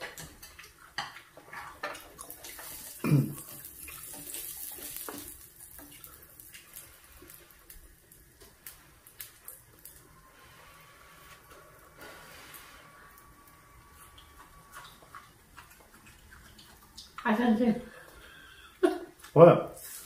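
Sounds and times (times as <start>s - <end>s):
wet mouth and food noises: 0.0s - 10.1s, 13.1s - 20.0s
person humming: 3.0s - 3.4s.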